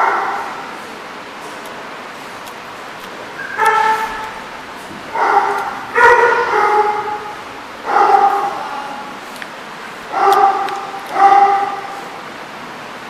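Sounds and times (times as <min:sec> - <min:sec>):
dog barking: 0:00.0 - 0:00.7, 0:03.4 - 0:04.4, 0:05.1 - 0:08.7, 0:10.1 - 0:12.2.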